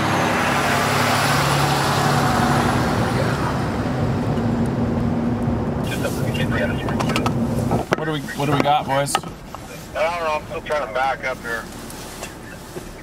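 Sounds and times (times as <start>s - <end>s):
vehicle driving past: 0.0s - 7.8s.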